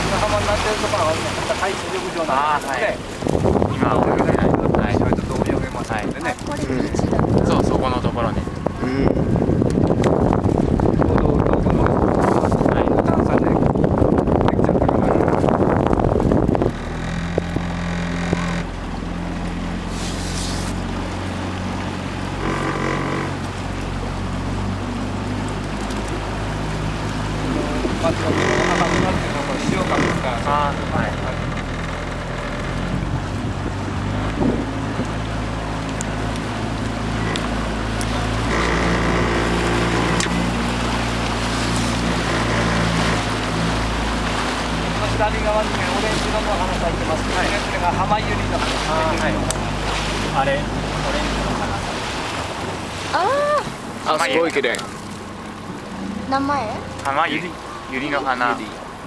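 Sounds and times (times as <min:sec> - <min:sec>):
wind buffeting microphone: 0:00.0 - 0:22.5, 0:23.4 - 0:57.9
boat engine droning: 0:00.0 - 0:59.0
water rushing: 0:00.0 - 0:59.0
wind rushing: 0:03.0 - 0:06.2, 0:06.9 - 0:17.6.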